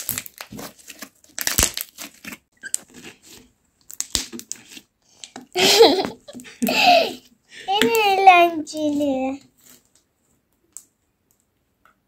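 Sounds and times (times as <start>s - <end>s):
slime popping and crackling: 0.0s - 3.2s, 3.8s - 4.9s.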